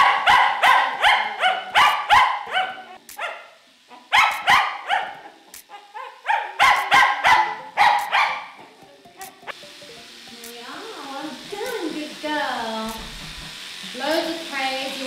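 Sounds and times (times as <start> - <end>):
dog barking sharply: 0.0 - 5.2, 6.2 - 8.5.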